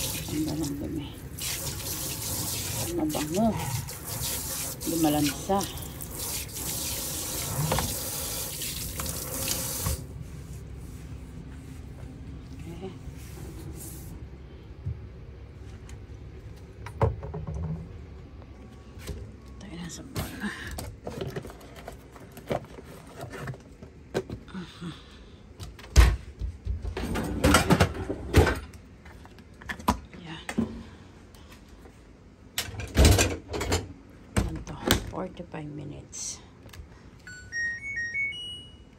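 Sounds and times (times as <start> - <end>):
faucet spraying water into metal sink: 1.4 - 10.0
dishwasher racks clattering: 26.9 - 28.7, 32.6 - 33.9.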